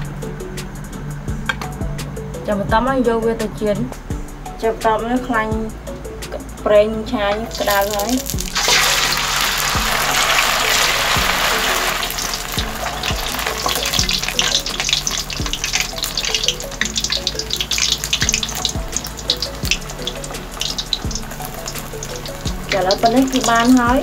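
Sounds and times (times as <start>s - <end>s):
food deep-frying in oil: 7.3s - 24.0s.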